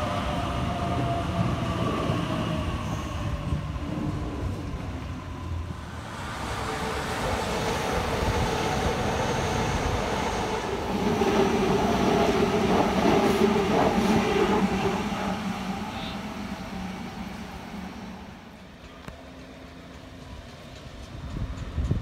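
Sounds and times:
train wheels rumbling on rail: 0.0s - 22.0s.

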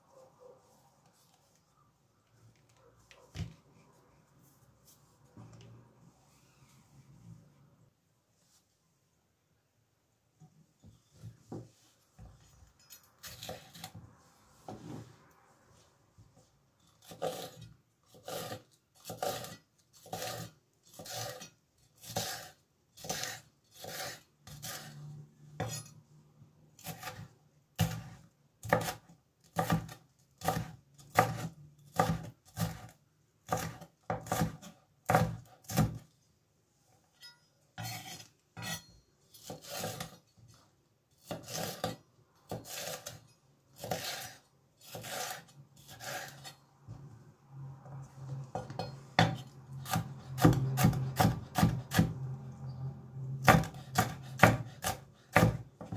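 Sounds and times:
knife chopping on cutting board: 26.8s - 29.0s, 29.6s - 32.9s, 33.5s - 36.0s, 48.6s - 52.2s, 53.4s - 55.9s.

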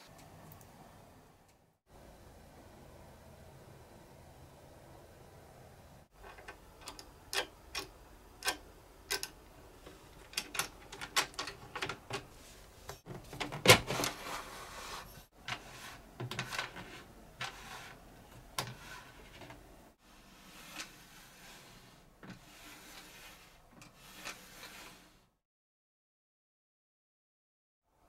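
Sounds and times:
short scrape: 20.1s - 25.3s.

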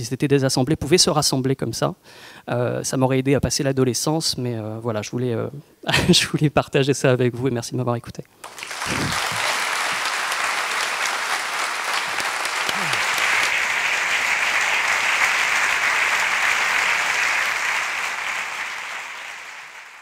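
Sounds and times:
audience applauding: 8.4s - 20.0s.

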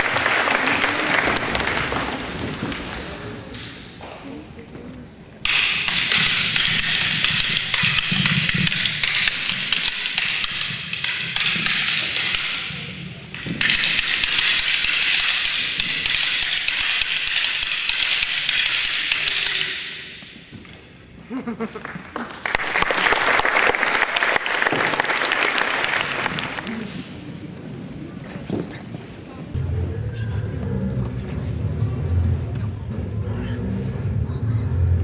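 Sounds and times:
wooden sticks clacking together: 1.2s - 4.2s, 4.8s - 20.9s.

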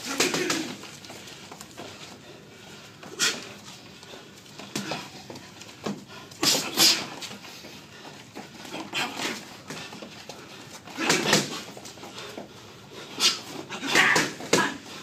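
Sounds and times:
boxing gloves smacking: 0.0s - 1.8s, 4.6s - 7.3s, 10.9s - 12.4s, 13.2s - 14.9s.

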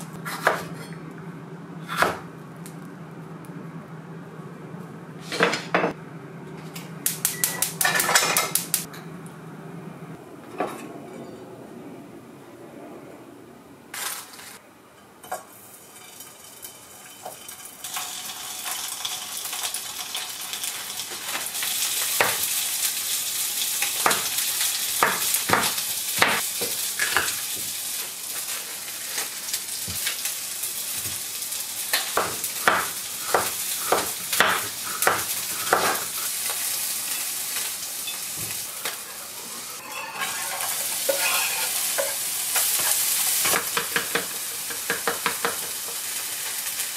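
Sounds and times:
vegetables sizzling in frying pan: 15.5s - 46.9s
wooden spatula scraping pan: 39.8s - 43.0s.

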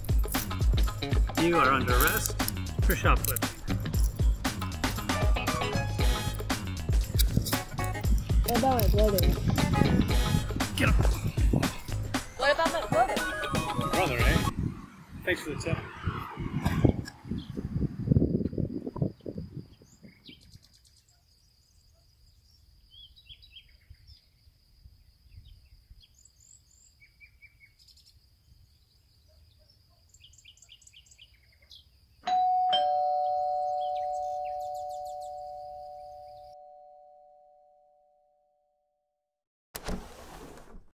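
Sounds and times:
birds chirping: 0.0s - 16.4s, 25.2s - 36.9s
two-tone doorbell chime: 32.3s - 38.2s.

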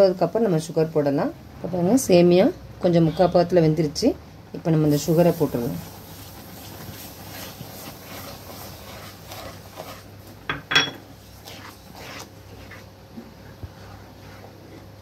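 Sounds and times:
sugar pouring hiss: 4.9s - 12.2s
spatula scraping pan: 4.9s - 15.0s.

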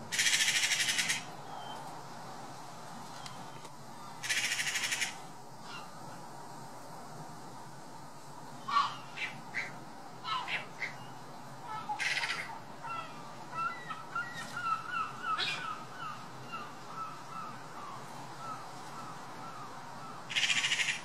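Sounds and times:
magpies harsh rattling chatter: 0.1s - 1.3s, 4.2s - 5.9s, 8.7s - 11.1s, 11.7s - 17.6s, 20.3s - 21.0s
birds chirping: 8.6s - 21.0s.

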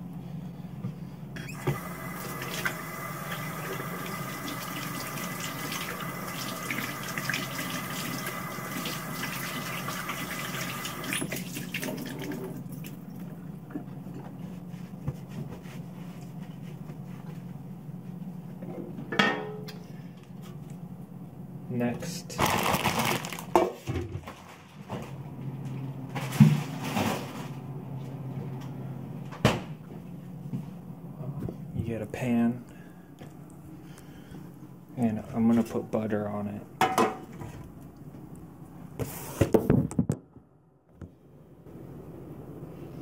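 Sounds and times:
tap running: 1.5s - 12.5s.

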